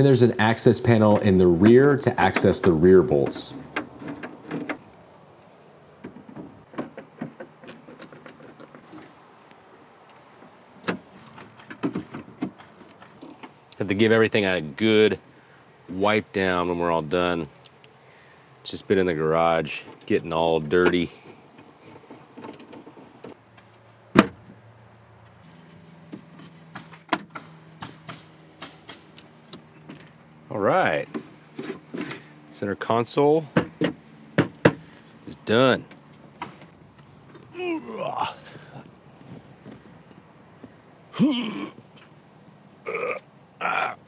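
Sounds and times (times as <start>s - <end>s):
faint steady hum: 0.0s - 26.4s
plastic panels clicking and knocking: 1.0s - 4.9s, 6.0s - 9.1s, 10.8s - 13.6s.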